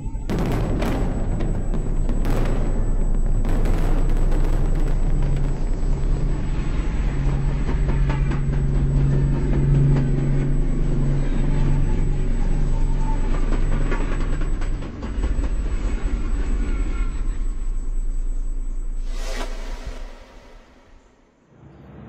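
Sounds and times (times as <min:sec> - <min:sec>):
steady low hum: 0:00.0 - 0:21.2
fireworks bursting: 0:00.3 - 0:08.5.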